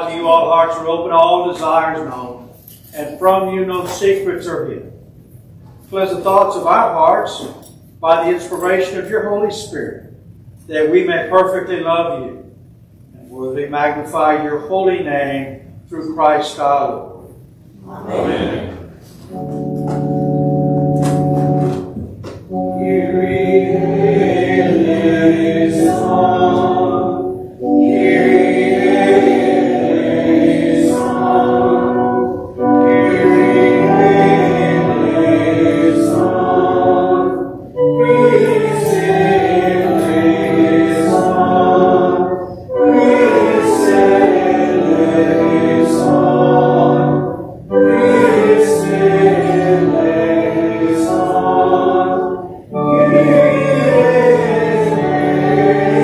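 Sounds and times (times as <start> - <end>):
congregation singing: 0.0 - 4.8, 16.4 - 56.0
church organ: 0.0 - 56.0.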